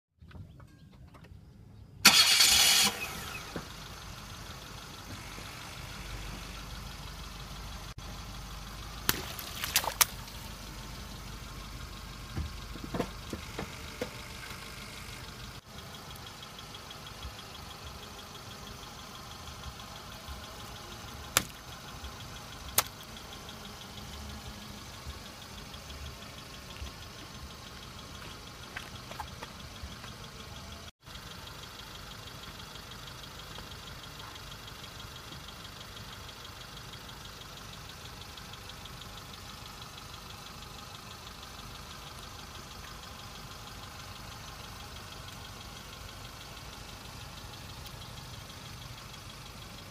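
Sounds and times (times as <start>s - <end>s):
car engine idling: 0.2s - 49.9s.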